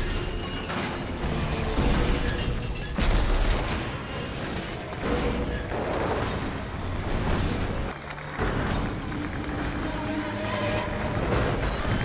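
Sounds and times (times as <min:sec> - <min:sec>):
low rumble of tumbling cars: 0:00.2 - 0:12.0.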